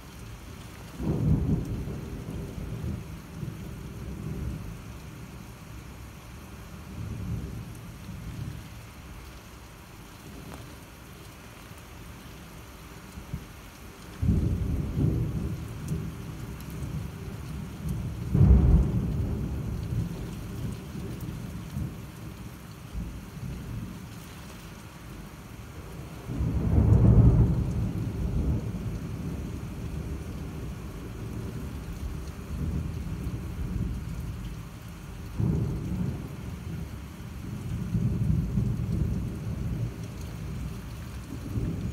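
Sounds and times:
heavy rain hissing: 0:00.0 - 0:41.9
thunder rumbling: 0:00.8 - 0:05.5, 0:14.2 - 0:24.1, 0:25.2 - 0:41.9.

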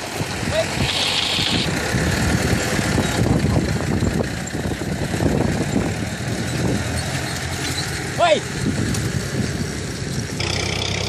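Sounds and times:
plough scraping through soil: 0:00.7 - 0:01.7.

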